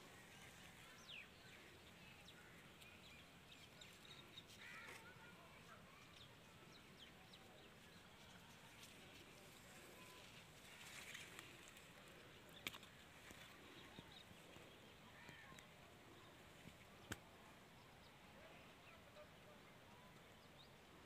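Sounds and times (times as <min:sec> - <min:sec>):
faint short bird calls: 0:04.5 - 0:06.0.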